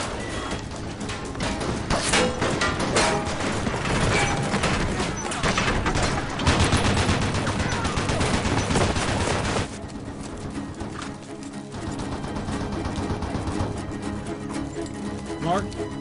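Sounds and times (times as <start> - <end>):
gunshots: 1.4 - 9.8
rapid gatling gun fire: 3.6 - 9.8.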